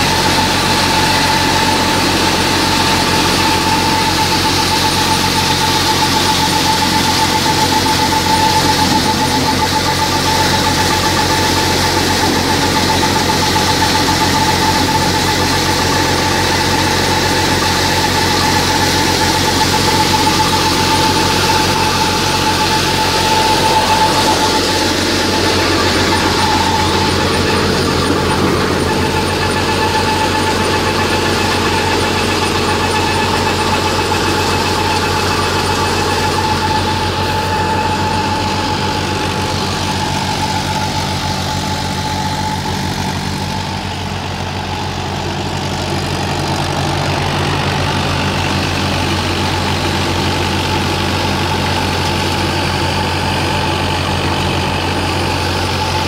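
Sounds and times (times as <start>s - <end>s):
diesel tractor engine under load: 0.0s - 56.0s
thresher drum whining: 0.0s - 56.0s.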